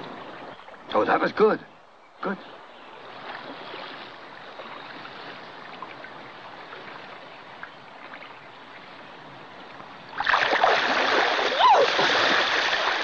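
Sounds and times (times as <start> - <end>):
rush of shallow water: 0.0 - 13.0.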